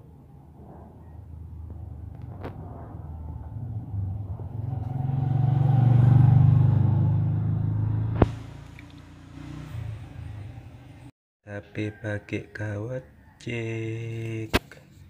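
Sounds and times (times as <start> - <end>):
vehicle engine running: 0.3 - 11.1.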